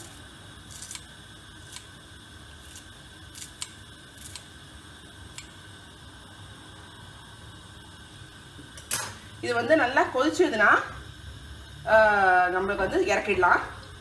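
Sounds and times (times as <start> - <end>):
scissors snipping herbs: 0.7 - 1.1, 1.7 - 1.9, 2.6 - 4.5.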